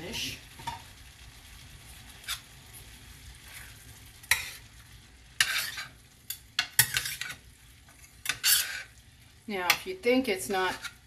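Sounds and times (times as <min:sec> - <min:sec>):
faint sizzle: 0:00.0 - 0:11.0
metal spoons scraping a pan: 0:02.2 - 0:02.5, 0:03.4 - 0:04.7, 0:05.4 - 0:09.0, 0:09.7 - 0:11.0.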